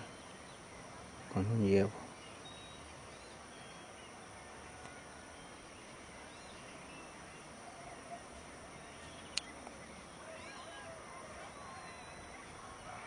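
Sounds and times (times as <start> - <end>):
distant bird chirps: 0.0 - 13.0
faint outdoor background noise: 0.0 - 13.0.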